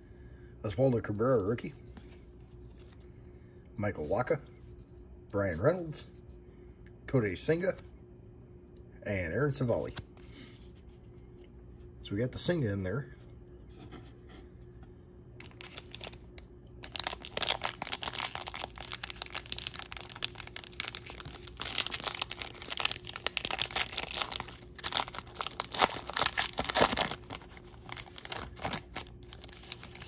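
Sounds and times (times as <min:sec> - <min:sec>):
foil wrapper crinkling and tearing: 0:15.4 - 0:30.0.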